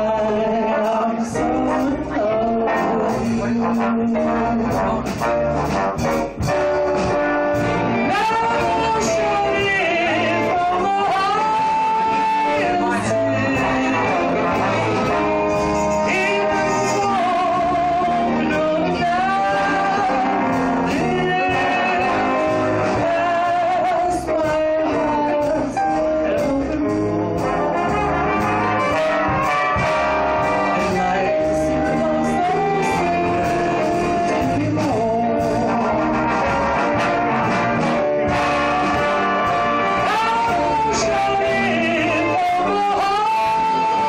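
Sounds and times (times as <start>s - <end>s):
woman singing into microphone: 0.0s - 4.6s, 8.0s - 27.2s, 30.7s - 35.8s, 40.0s - 44.0s
live band playing: 0.0s - 44.0s
saxophone: 0.0s - 44.0s.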